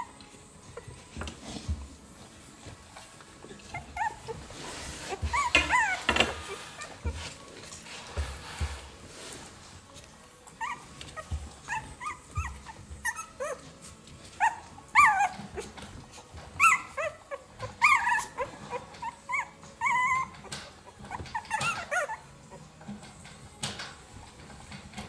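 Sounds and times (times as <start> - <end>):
puppies squeaking and whimpering: 0.0 - 9.3, 10.4 - 25.0.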